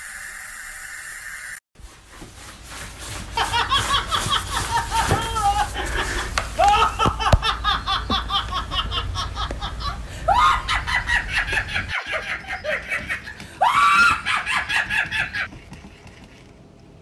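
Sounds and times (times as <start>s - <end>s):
woman laughing hard: 3.4s - 15.5s.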